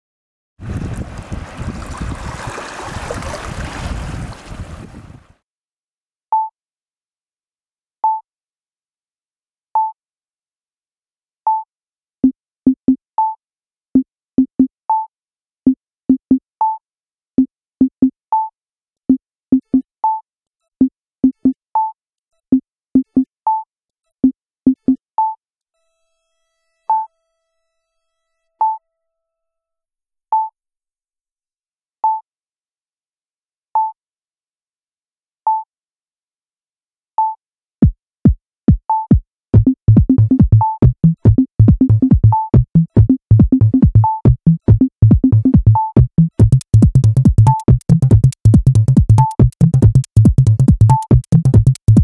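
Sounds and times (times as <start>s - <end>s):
water lapping: 0.6s - 5.3s
electronic music with synth notes: 44.8s - 52.0s.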